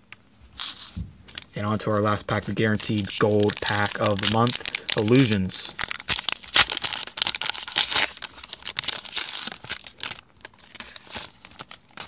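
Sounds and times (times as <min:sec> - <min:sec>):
foil wrapper tearing and crinkling: 0:00.6 - 0:12.0.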